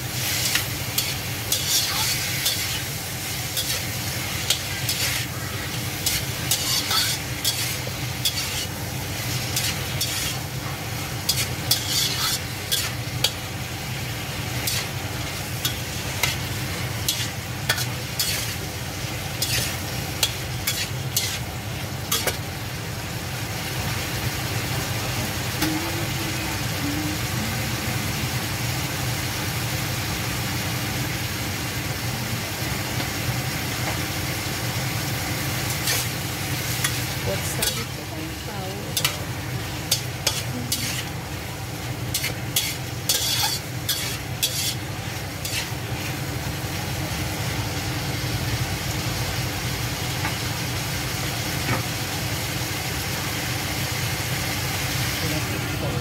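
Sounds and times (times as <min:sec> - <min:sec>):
food sizzling in a hot pan: 0:00.0 - 0:56.0
spatula scraping a pan: 0:00.2 - 0:02.9, 0:03.5 - 0:10.4, 0:11.3 - 0:13.4, 0:15.6 - 0:18.6, 0:19.4 - 0:21.5, 0:35.7 - 0:38.0, 0:39.9 - 0:41.2, 0:42.1 - 0:45.8.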